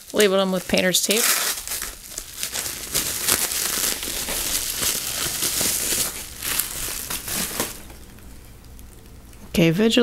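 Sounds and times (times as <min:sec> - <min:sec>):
bubble wrap crinkling: 0:00.0 - 0:09.4.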